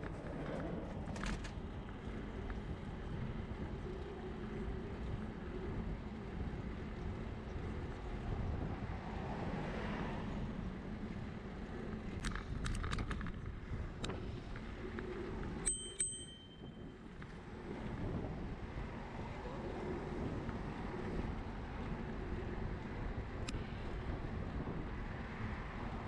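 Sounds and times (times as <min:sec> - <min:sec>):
wind and road noise: 0:00.0 - 0:26.0
bicycle bell ringing: 0:15.6 - 0:16.9.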